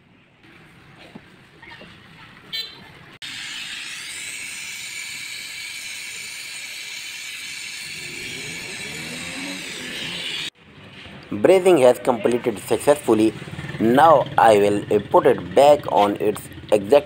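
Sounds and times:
torch flame hissing: 3.2 - 10.6.

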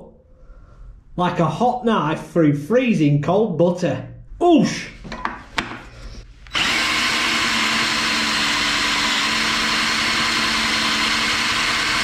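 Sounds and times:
cordless drill running: 6.4 - 12.0.

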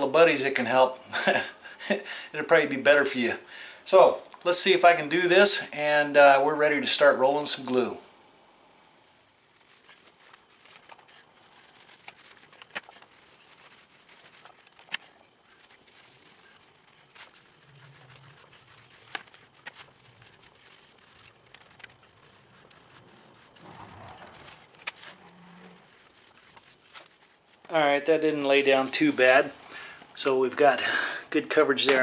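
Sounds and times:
foam roller rubbing hiss: 9.0 - 27.6.

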